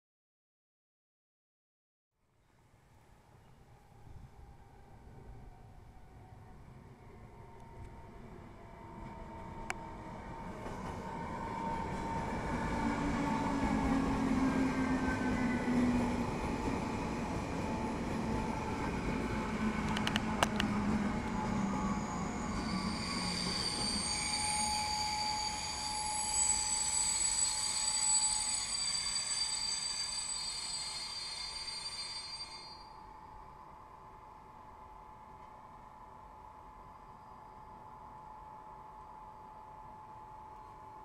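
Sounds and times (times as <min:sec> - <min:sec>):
electric train passing: 0:03.7 - 0:41.0
high-pitched wheel squeal: 0:21.4 - 0:33.0.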